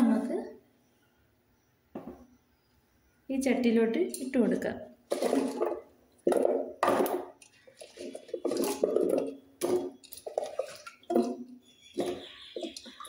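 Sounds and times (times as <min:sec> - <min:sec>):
food cubes dropped into clay pot: 0:05.1 - 0:13.0
hand scraping cubes in steel bowl: 0:05.1 - 0:13.0.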